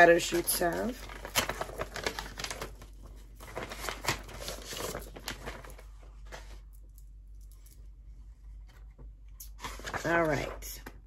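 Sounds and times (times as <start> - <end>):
paper rustling and crinkling: 0.0 - 6.7, 9.6 - 10.6.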